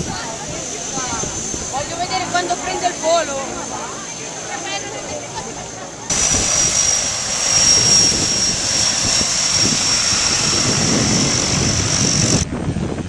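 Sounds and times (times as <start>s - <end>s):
wind on microphone: 0.0s - 2.2s, 6.1s - 13.0s
propeller rumble: 0.0s - 13.0s
turboprop engine whine: 0.0s - 13.0s.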